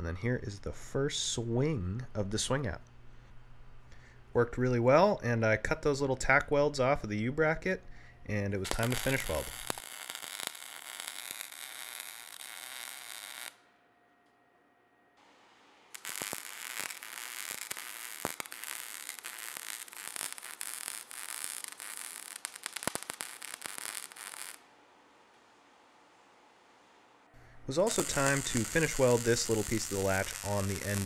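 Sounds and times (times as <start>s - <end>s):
welding arc crackling and sizzling: 8.3s - 13.6s, 15.9s - 24.7s, 27.6s - 31.0s.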